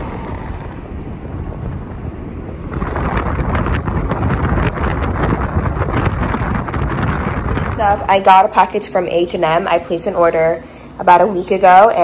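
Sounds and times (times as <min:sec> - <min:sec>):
car road rumble: 0:00.0 - 0:08.6
wind rushing: 0:00.0 - 0:09.2
wind buffeting microphone: 0:00.0 - 0:10.3.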